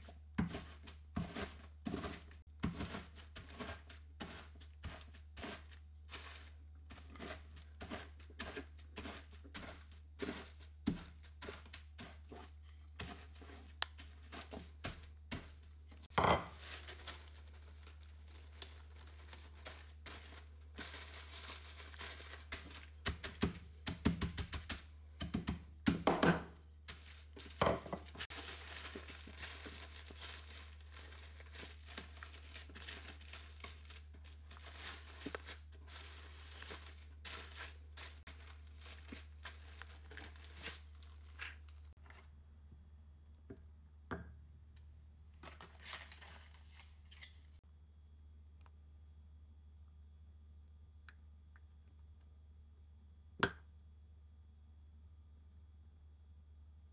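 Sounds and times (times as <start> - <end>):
crackers crunching: 0.6 - 23.8, 26.6 - 42.3
plastic bag crinkling: 16.5 - 23.3, 26.9 - 42.0.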